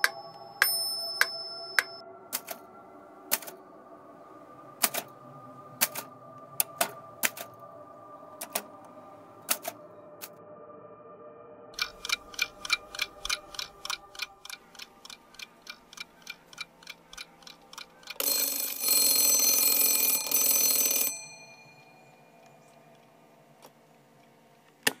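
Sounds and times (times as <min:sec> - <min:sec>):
alarm clock bell ringing: 0:00.0 - 0:02.6, 0:11.8 - 0:22.8
alarm clock ticking: 0:00.0 - 0:02.6, 0:03.3 - 0:03.6, 0:05.8 - 0:07.6, 0:08.4 - 0:08.7, 0:11.8 - 0:23.0.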